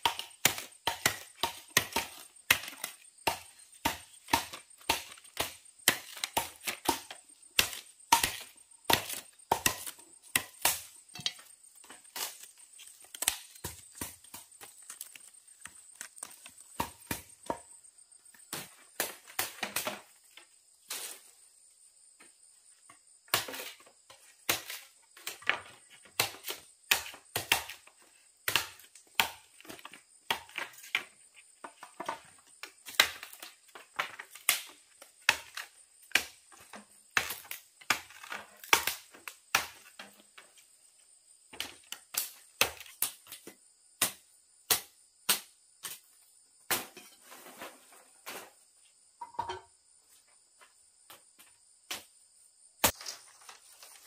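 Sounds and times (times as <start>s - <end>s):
sharp chopping strikes: 0.0s - 11.2s
insects chirring: 0.0s - 54.0s.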